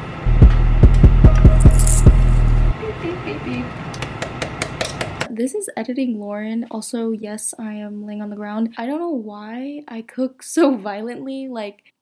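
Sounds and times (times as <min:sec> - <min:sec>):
bass-heavy music thumping beat: 0:00.3 - 0:02.7.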